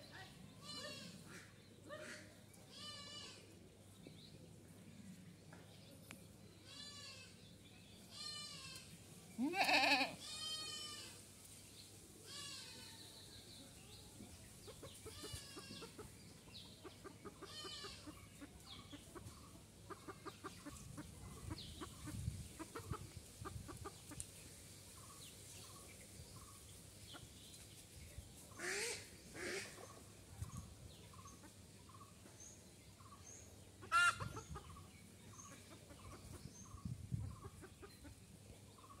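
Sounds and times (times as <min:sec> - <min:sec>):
goat bleating: 0:09.4 - 0:11.1
chickens clucking: 0:14.5 - 0:24.4, 0:26.5 - 0:27.8, 0:28.4 - 0:32.4, 0:33.0 - 0:39.0.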